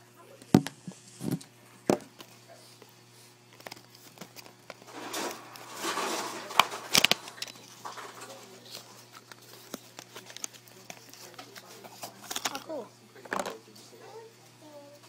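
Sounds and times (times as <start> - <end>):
plastic packaging crinkling: 3.5 - 12.8.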